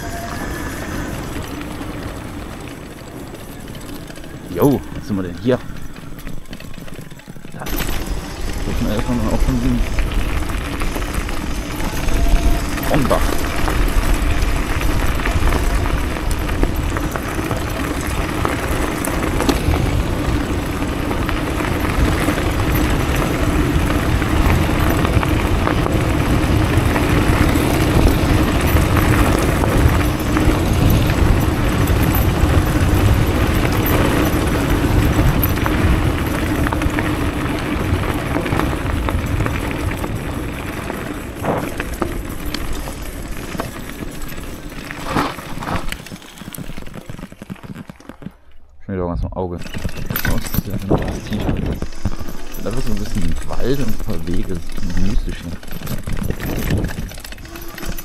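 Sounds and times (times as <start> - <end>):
low hum: 0.0 - 46.6
tyres crunching on gravel: 0.0 - 58.0
wind on microphone: 7.6 - 42.1, 49.6 - 58.0.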